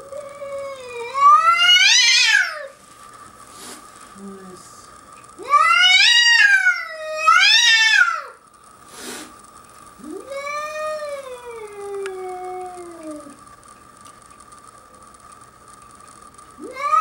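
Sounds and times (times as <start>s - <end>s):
cat yowling: 0.2s - 2.7s, 5.4s - 8.3s, 16.6s - 17.0s.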